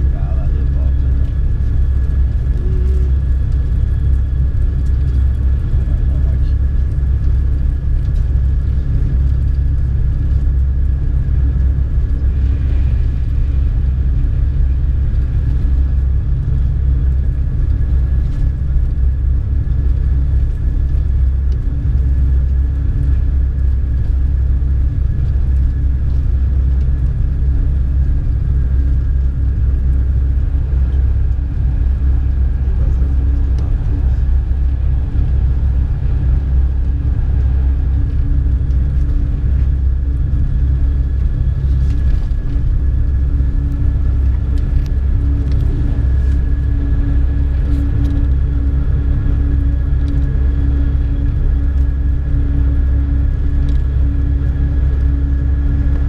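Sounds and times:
thin steady whine: 0:00.0 - 0:56.0
train low rumble: 0:00.0 - 0:56.0.

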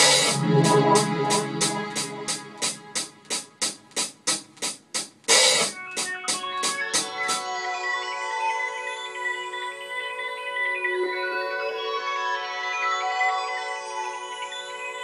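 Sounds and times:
keyboard chords: 0:00.0 - 0:03.9.

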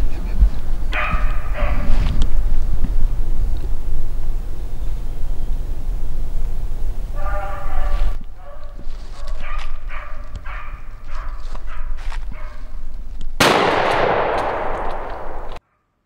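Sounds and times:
dogs baying: 0:00.9 - 0:02.1, 0:07.0 - 0:12.8
shotgun blast echoing: 0:13.4 - 0:15.6.

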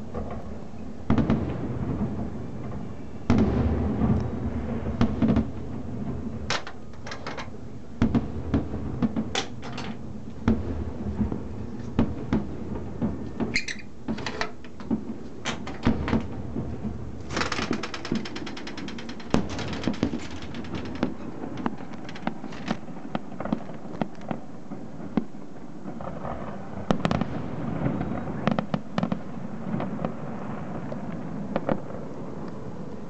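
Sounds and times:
firework bangs with echo: 0:00.0 - 0:14.2, 0:14.8 - 0:18.2, 0:19.1 - 0:32.4
steady low rumble: 0:00.0 - 0:14.2, 0:14.9 - 0:26.0.

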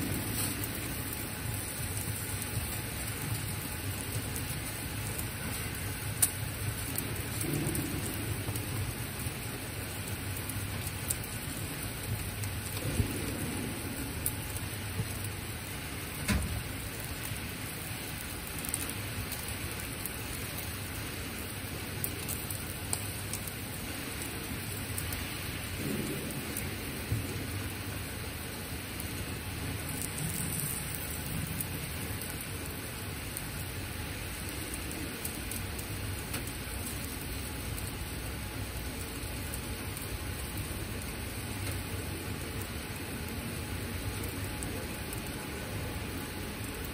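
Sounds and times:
fat popping and crackling: 0:00.0 - 0:17.4, 0:34.4 - 0:37.9
fish sizzling on grill: 0:00.0 - 0:46.9.

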